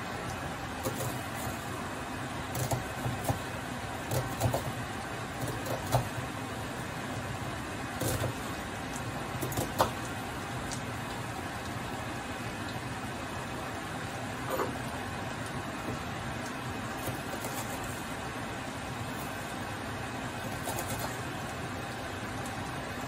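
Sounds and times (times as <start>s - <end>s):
knife cutting on wooden board: 4.1s - 4.7s.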